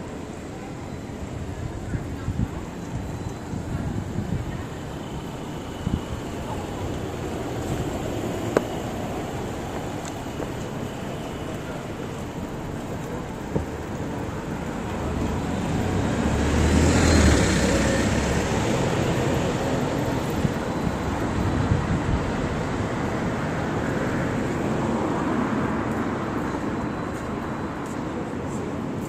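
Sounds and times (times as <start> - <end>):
street traffic hum: 0.0 - 29.0
vehicle passing: 14.7 - 26.5.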